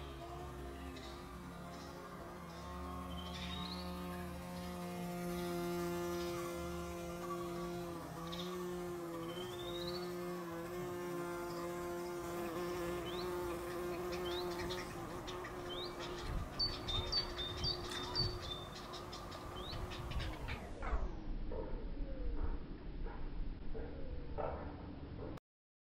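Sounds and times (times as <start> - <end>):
insect buzzing in flight: 0.4 - 20.1.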